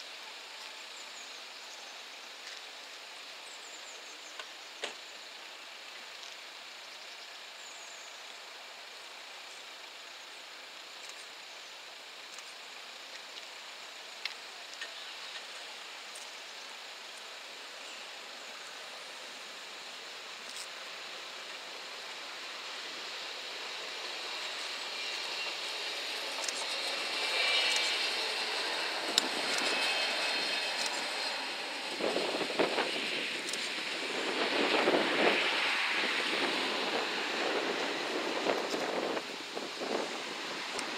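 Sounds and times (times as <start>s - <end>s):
train passing: 20.8s - 40.9s
wheels clicking on rails: 22.9s - 40.9s.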